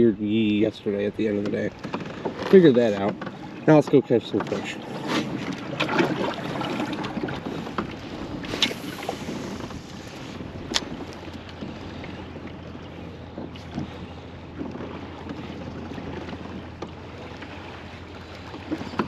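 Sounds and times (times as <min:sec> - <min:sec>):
water lapping against kayak hull: 0:00.0 - 0:19.0
wind on microphone: 0:04.7 - 0:12.4.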